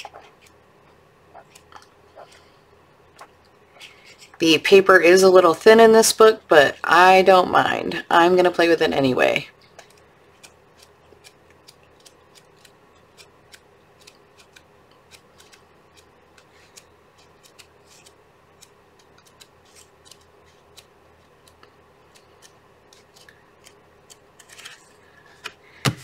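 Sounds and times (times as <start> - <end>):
paper pages flicking: 22.2 - 24.9.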